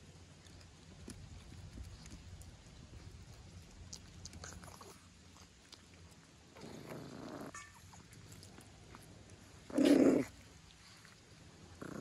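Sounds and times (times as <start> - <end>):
dog grumbling: 6.6 - 7.6, 9.7 - 10.4, 11.8 - 12.0.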